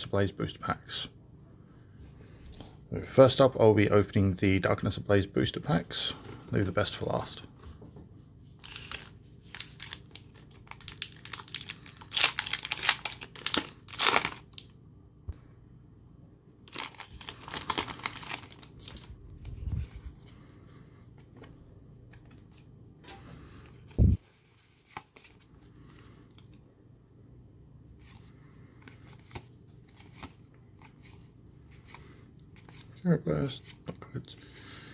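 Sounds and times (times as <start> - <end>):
trading cards being handled: 8.4 - 14.5, 16.7 - 26.6, 28.0 - 32.9
foil wrapper tearing and crinkling: 8.6 - 14.7, 16.7 - 19.1.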